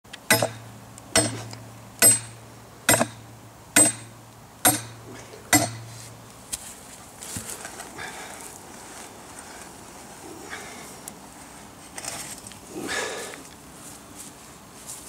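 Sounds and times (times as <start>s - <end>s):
metal hammer blows on pipe: 0.3s - 3.2s, 3.8s - 6.0s
pipe ringing: 2.0s - 3.2s.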